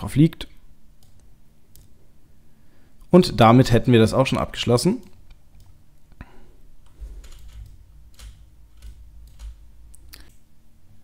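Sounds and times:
computer mouse clicks: 0:01.0 - 0:01.9
mouse scroll-wheel turning: 0:06.8 - 0:10.4.

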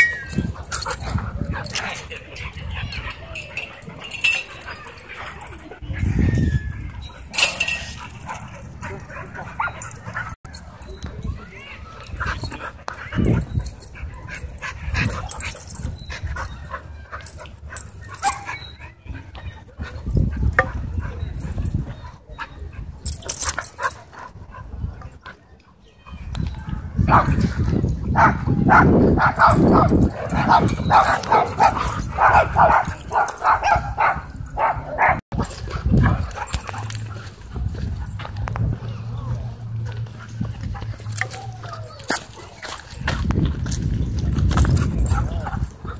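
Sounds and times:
dogs yipping and whining: 0:00.0 - 0:24.3, 0:26.4 - 0:43.2
dogs barking in play: 0:07.1 - 0:10.7, 0:27.0 - 0:42.9
scuffling and heavy bumps: 0:26.7 - 0:45.9.

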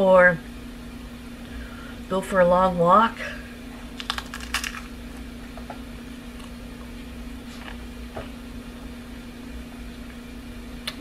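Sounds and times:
person chewing crisp cracker: 0:04.0 - 0:04.9.

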